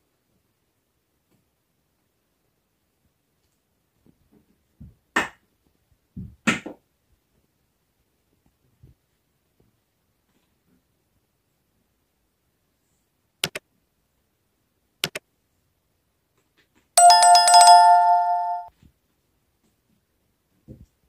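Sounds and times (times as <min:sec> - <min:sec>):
mouse clicks: 0:13.4 - 0:13.6, 0:15.0 - 0:15.2
bell notification chime: 0:17.0 - 0:18.7.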